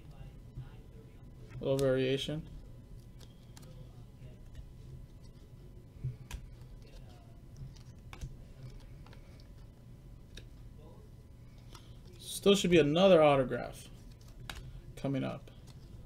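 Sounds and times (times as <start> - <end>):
low room hum: 0.0 - 16.0
trading cards clicking: 14.1 - 14.8.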